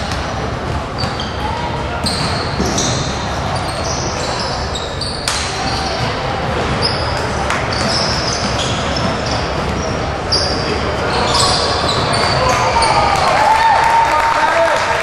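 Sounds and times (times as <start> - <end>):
sneakers squeaking on hardwood: 0.0 - 13.1
voices echoing in hall: 0.0 - 15.0
basketball bouncing: 7.7 - 10.6.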